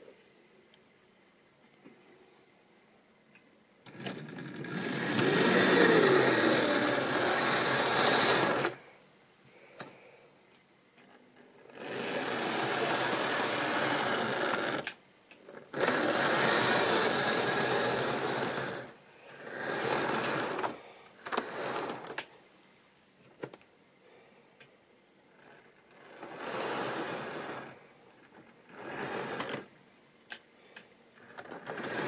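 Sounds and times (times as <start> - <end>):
model train rattling whir: 3.9 - 8.8, 11.6 - 22.3, 25.4 - 29.7, 31.2 - 32.0.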